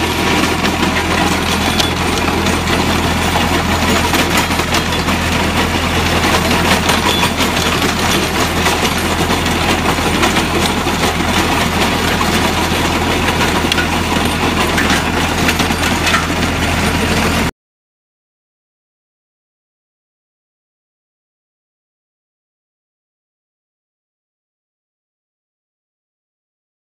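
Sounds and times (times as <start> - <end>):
stones rattling against steel tines: 0.0 - 16.7
tractor engine running: 0.0 - 17.5.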